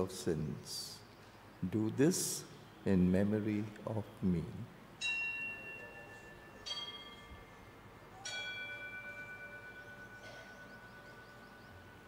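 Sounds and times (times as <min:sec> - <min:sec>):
altar bells ringing: 0:05.0 - 0:12.0.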